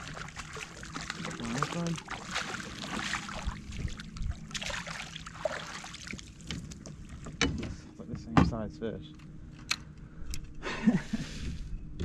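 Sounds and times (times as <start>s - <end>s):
water splashing against kayak: 0.0s - 7.4s.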